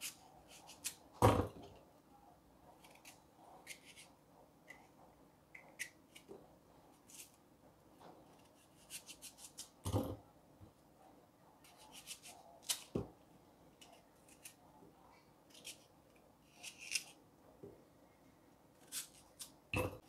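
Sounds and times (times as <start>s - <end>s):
knife slicing apple: 0.0s - 1.6s, 2.8s - 4.1s, 8.3s - 10.0s, 11.6s - 13.1s, 16.5s - 17.2s, 18.8s - 20.0s.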